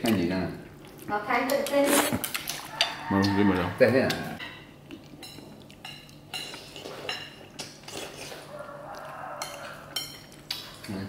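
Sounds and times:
tableware clinking on ceramic plates: 5.3 - 7.5.

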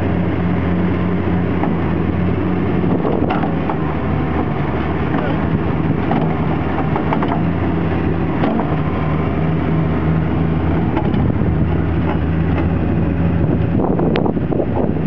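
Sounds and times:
diesel engine running: 0.0 - 15.0
knocks and clanks: 3.0 - 3.9, 5.1 - 7.5, 10.8 - 11.4.

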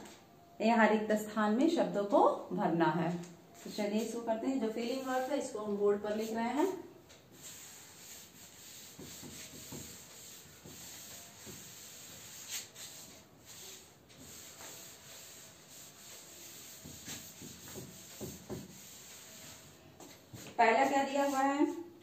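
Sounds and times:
duster rubbing blackboard: 4.0 - 5.6, 6.2 - 21.8.

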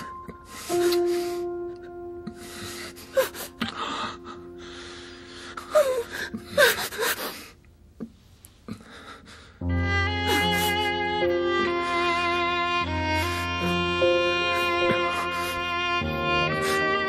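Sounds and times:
soft dramatic music: 0.0 - 7.6, 9.6 - 17.0
woman gasping and whimpering: 0.0 - 7.6.

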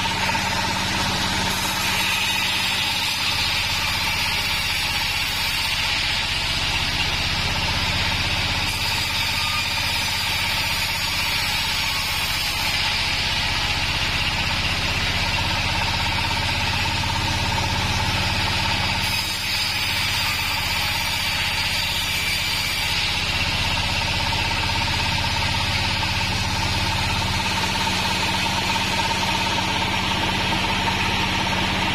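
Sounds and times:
sawmill engine drone: 0.0 - 31.9
steady whine: 23.0 - 31.9.

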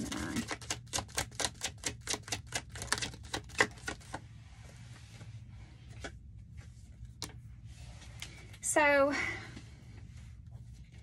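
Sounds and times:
cards shuffling: 0.0 - 4.2.

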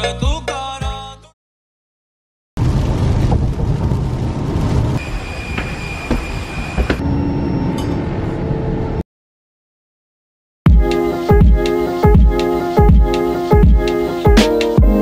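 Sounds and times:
airliner cabin rushing noise: 5.0 - 7.2.

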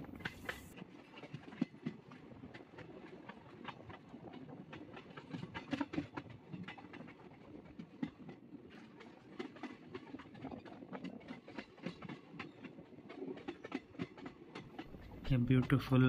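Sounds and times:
moving train rumble: 0.0 - 16.0
train wheels clattering over rail joints: 0.0 - 16.0.

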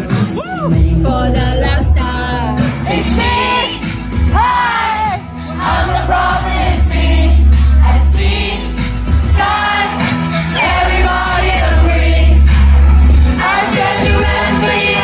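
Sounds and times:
heavy bass line: 0.0 - 15.0
women singing pop melody: 0.0 - 15.0.

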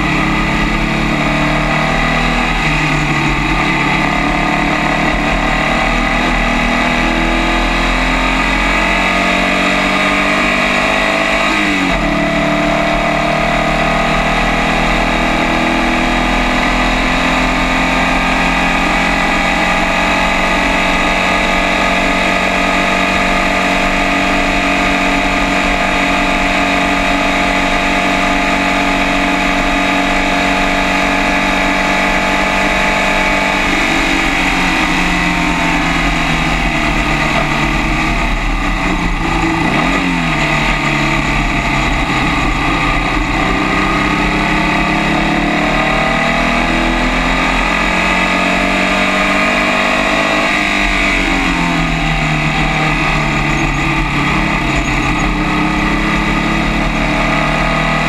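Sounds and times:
race car engine revving: 0.0 - 58.0.

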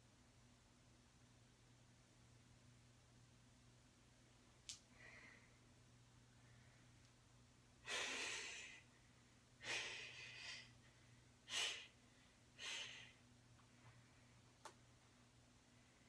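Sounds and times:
man breathing hard: 9.6 - 13.2.

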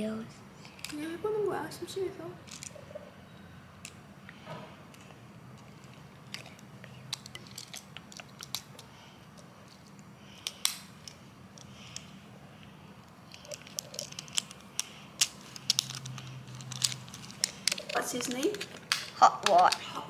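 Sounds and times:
plastic toy joints clicking: 5.6 - 8.8, 13.3 - 19.9.

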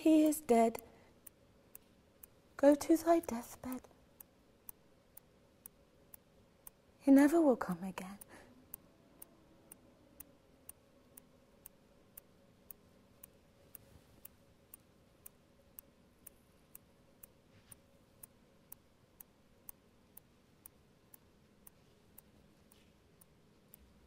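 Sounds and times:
clock ticking: 0.0 - 24.0.

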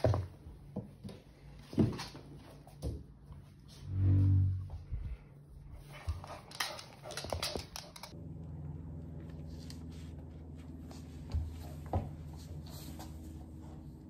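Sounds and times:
steady low hum: 3.2 - 6.5.

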